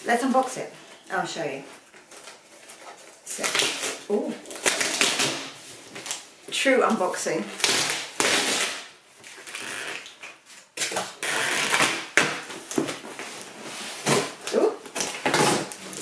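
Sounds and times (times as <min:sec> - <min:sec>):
cardboard box tearing: 0:03.4 - 0:05.6.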